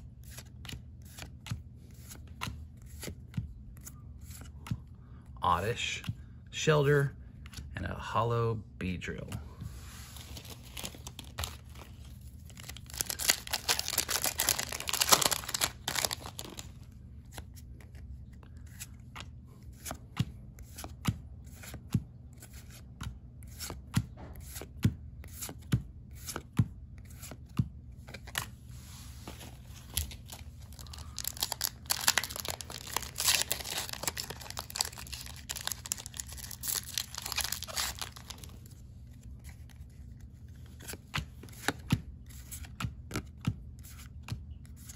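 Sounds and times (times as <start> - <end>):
foil wrapper crinkling and tearing: 10.2 - 16.8, 29.9 - 38.6.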